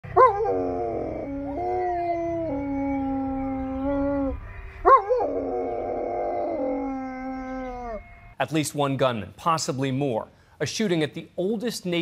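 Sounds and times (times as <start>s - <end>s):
dog howling: 0.1s - 8.1s.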